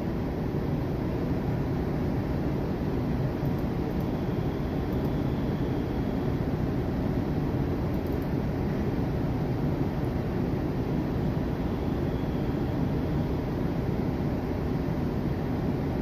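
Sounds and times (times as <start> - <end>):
low rumble of machinery: 0.0 - 16.0
ventilation hiss: 0.0 - 16.0.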